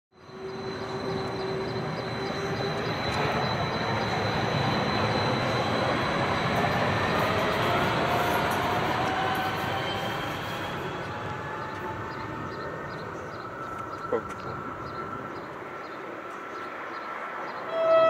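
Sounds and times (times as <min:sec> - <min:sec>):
tram wheel and running noise: 0:00.2 - 0:18.0.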